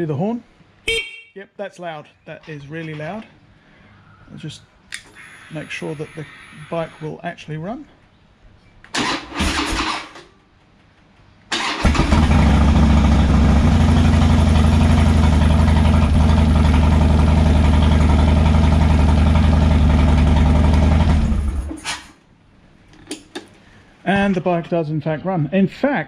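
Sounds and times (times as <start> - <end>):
electric starter cranking: 8.9 - 10.2, 11.5 - 12.5
motorcycle engine idling: 11.9 - 21.4.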